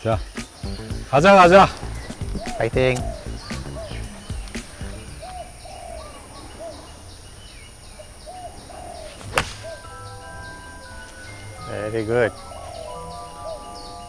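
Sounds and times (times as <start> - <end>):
bird hooting: 0.4 - 14.0
golf club striking ball: 9.2 - 9.9.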